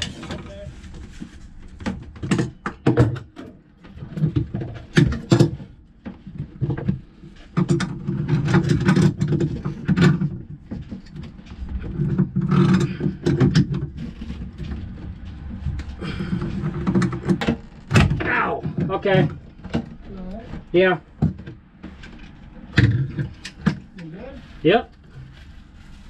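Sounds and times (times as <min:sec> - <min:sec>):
low steady rumble: 0:05.6 - 0:26.0.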